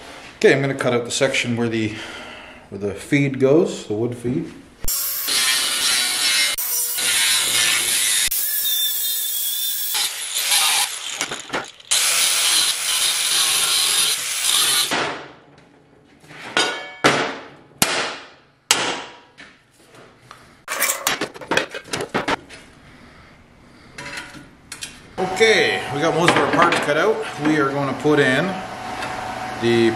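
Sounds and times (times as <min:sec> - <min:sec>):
angle grinder cutting steel: 0:04.9 - 0:14.9.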